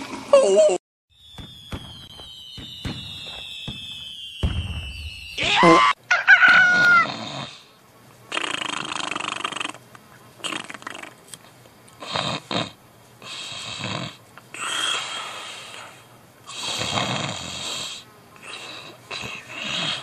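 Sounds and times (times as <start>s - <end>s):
person fake snoring: 8.3s - 9.8s, 10.4s - 11.2s, 12.0s - 20.0s.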